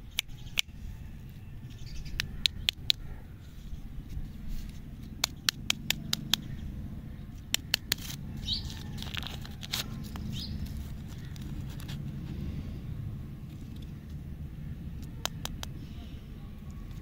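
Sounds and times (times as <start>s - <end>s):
wrapper crackling and crinkling: 7.9s - 12.2s.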